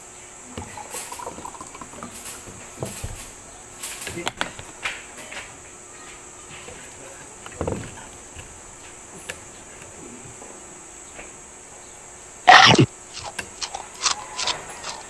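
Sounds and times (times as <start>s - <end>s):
high insect drone: 0.0s - 15.0s
loud burst of noise: 12.5s - 12.9s.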